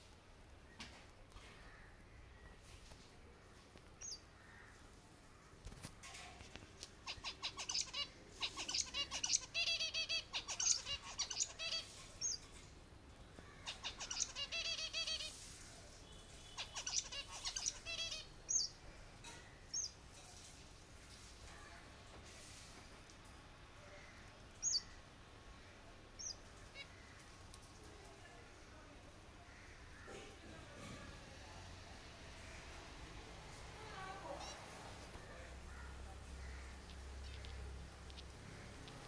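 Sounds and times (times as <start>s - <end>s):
finches chirping: 7.0s - 12.4s, 13.6s - 15.4s, 16.4s - 18.8s, 24.6s - 25.0s, 26.2s - 27.0s, 36.4s - 39.0s.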